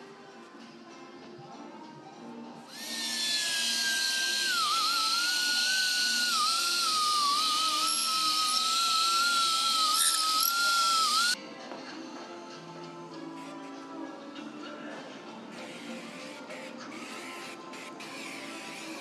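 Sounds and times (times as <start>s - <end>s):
high-speed power tool whine: 2.7s - 11.4s.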